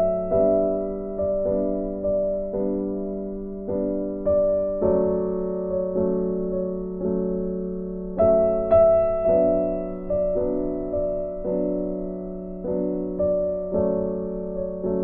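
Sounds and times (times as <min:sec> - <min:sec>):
slow soft piano music: 0:00.0 - 0:15.0.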